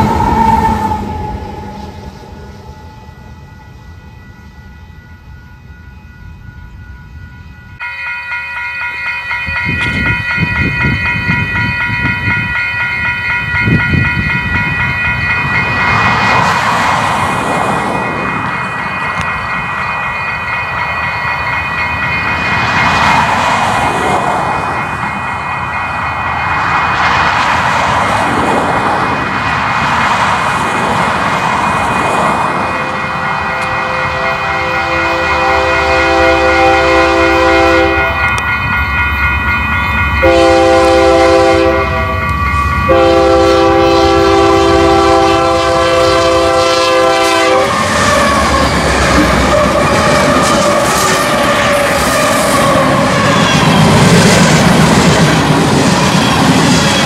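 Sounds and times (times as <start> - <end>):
train rumbling: 0.0 - 57.0
locomotive air horn blasts: 33.1 - 38.3, 40.2 - 42.2, 42.9 - 48.4.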